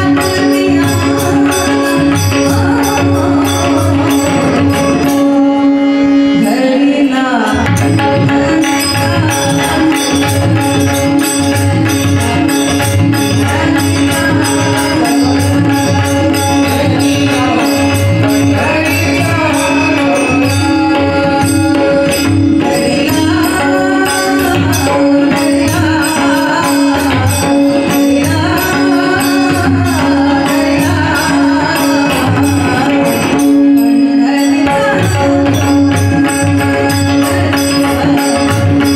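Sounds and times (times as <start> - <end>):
voices singing: 0.0 - 7.7.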